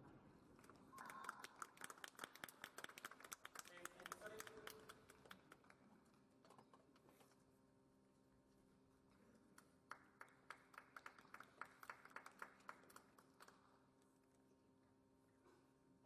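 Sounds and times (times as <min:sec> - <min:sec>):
faint steady hum: 0:00.0 - 0:16.0
small crowd clapping: 0:00.6 - 0:06.2, 0:09.5 - 0:14.0.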